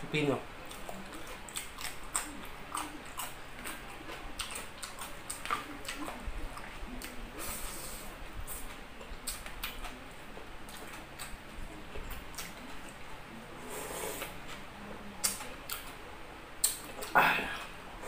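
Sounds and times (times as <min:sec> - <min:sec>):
person chewing with mouth open: 0:00.6 - 0:13.0, 0:15.2 - 0:15.9, 0:16.6 - 0:17.7.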